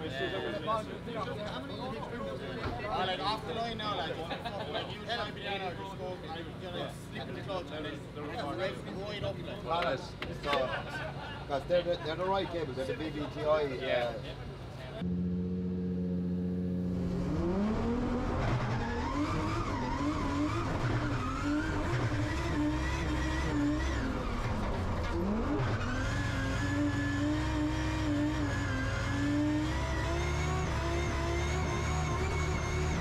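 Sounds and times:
car engine revving: 0:15.0 - 0:33.0.

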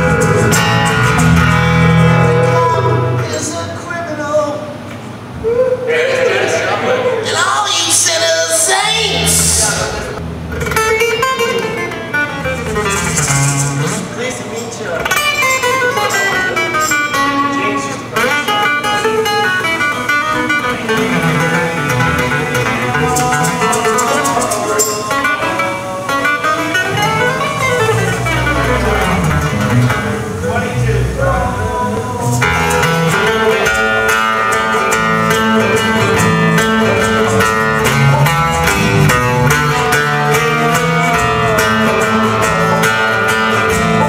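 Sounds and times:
deep bass notes: 0:00.0 - 0:03.3, 0:26.8 - 0:34.2, 0:34.9 - 0:44.0
guitar playing short phrases: 0:00.0 - 0:03.9, 0:07.7 - 0:44.0
low sustained notes: 0:21.1 - 0:33.7.

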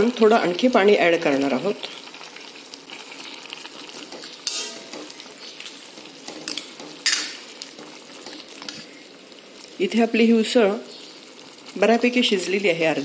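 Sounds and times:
curry sizzling: 0:00.0 - 0:13.0
ladle scraping metal pan: 0:04.0 - 0:05.3.

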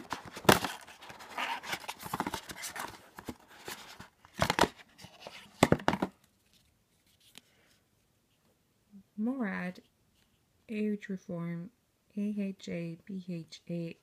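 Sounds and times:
cardboard scraping and rustling: 0:00.0 - 0:06.1.

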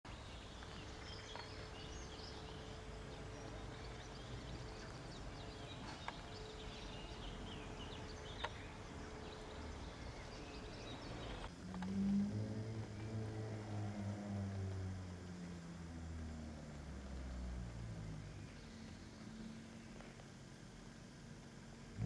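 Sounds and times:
small birds chirping: 0:00.1 - 0:12.2, 0:12.8 - 0:22.0
faint hum: 0:00.1 - 0:22.0
low steady rumble: 0:00.1 - 0:22.0
sharp clicks: 0:08.4 - 0:08.7.

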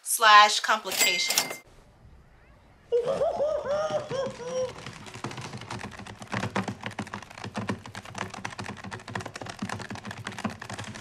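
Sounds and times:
calculator keys clicking: 0:04.2 - 0:11.0.

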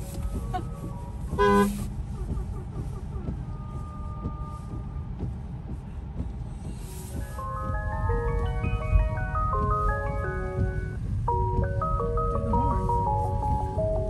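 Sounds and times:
tyre noise on wet road: 0:00.0 - 0:07.4
car horn honk: 0:01.4 - 0:01.9.

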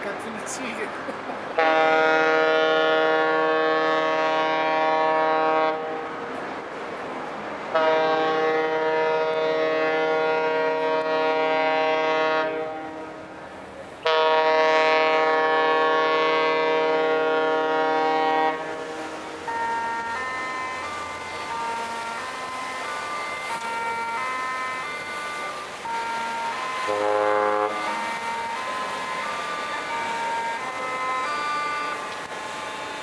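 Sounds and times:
ship's horn blasts: 0:01.6 - 0:06.3, 0:07.7 - 0:13.4, 0:14.0 - 0:33.0.

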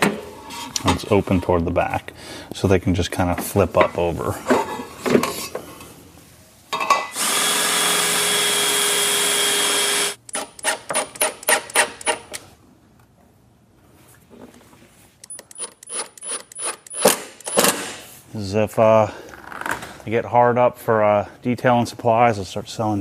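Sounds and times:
power drill driving a screw: 0:07.2 - 0:12.2.

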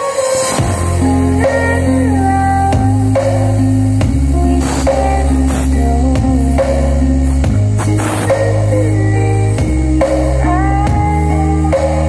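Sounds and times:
loud music over speakers: 0:00.0 - 0:12.0
heavy bass: 0:00.6 - 0:12.0
drum hits: 0:02.8 - 0:08.8.

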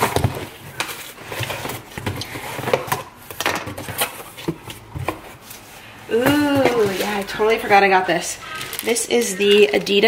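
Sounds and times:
cardboard knocks scrapes and rustles: 0:03.7 - 0:07.5.

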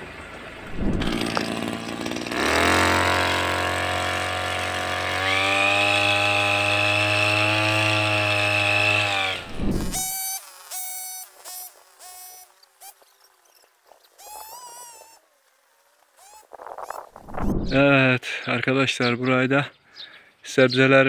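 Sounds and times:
small engine running at high speed: 0:00.0 - 0:13.4, 0:14.2 - 0:17.7
high whine: 0:00.6 - 0:01.5.

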